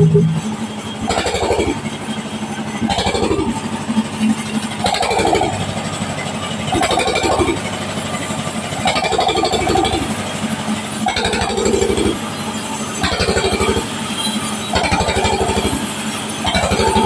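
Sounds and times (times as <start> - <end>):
machinery surge falling in pitch: 0.0 - 1.8
sawmill machinery humming: 0.0 - 17.0.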